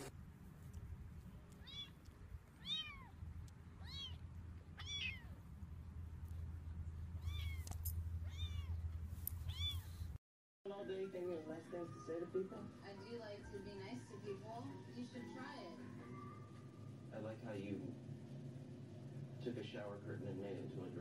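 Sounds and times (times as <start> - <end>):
kitten mewing: 1.5 - 2.0, 2.6 - 3.2, 3.8 - 4.2, 4.8 - 5.4, 7.2 - 8.8, 9.4 - 10.0.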